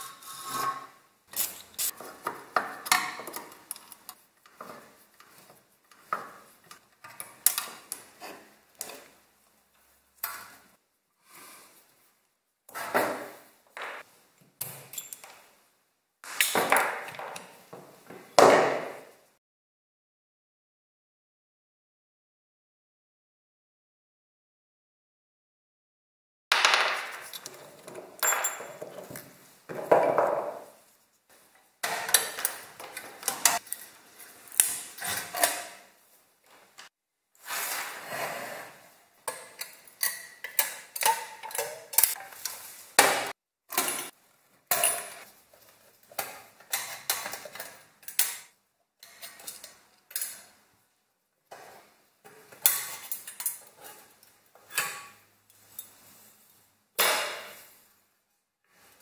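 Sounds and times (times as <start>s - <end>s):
metal parts clinking on workbench: 26.7s - 29.1s.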